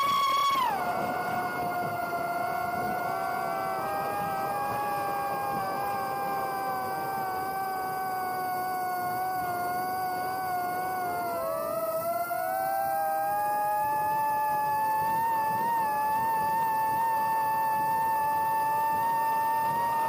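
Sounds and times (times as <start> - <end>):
wind rush: 0.0 - 11.4
electric propeller motors whining: 0.0 - 20.0.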